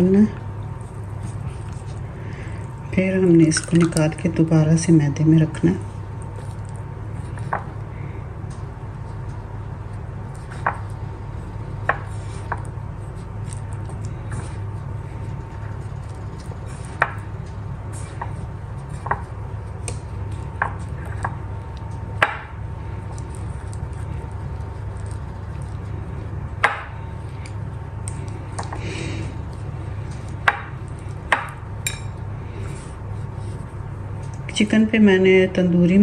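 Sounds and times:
steady low hum: 0.0s - 36.0s
hands rubbing chicken in flour: 8.7s - 31.3s.

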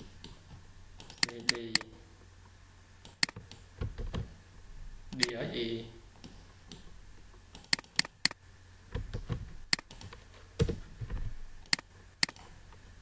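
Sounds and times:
keyboard and mouse clicks: 0.0s - 1.9s, 3.0s - 4.3s, 5.1s - 5.4s, 7.5s - 8.4s, 9.0s - 10.8s, 11.6s - 12.6s.

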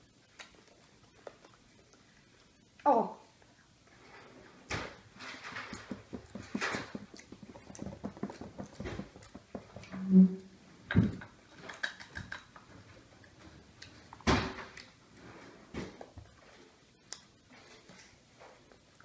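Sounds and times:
chewing candy: 5.5s - 9.9s
candies clicking in ceramic dishes: 11.6s - 12.6s.

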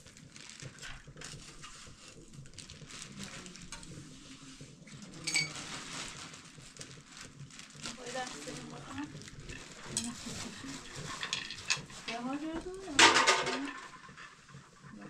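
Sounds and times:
metal utensils and pots clinking: 5.0s - 5.8s, 7.9s - 14.9s.

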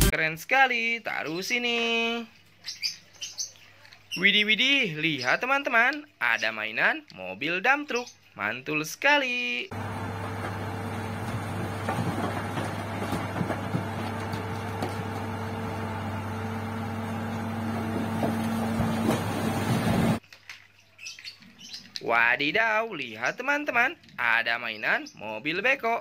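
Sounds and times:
rock load tipping out: 9.7s - 20.2s
truck diesel engine running: 9.7s - 20.2s
rocks knocking: 9.8s - 15.9s, 17.2s - 20.2s.

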